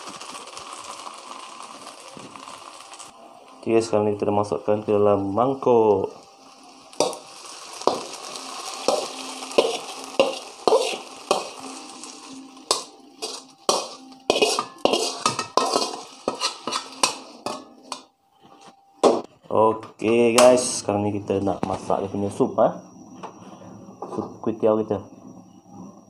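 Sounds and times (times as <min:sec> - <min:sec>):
metal spatula scraping a wok: 0:07.0 - 0:18.0.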